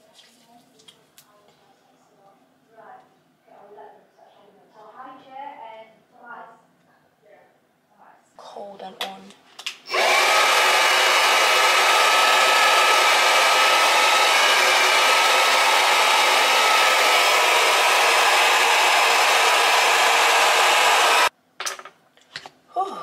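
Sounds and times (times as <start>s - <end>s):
hair dryer blowing with whine: 9.9s - 21.3s.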